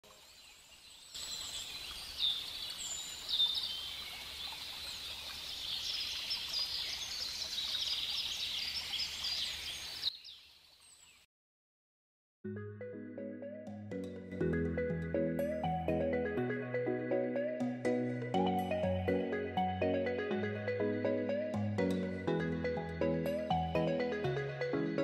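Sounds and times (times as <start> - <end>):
small birds chirping: 0.1 - 11.3
mallet percussion music: 13.7 - 25.0.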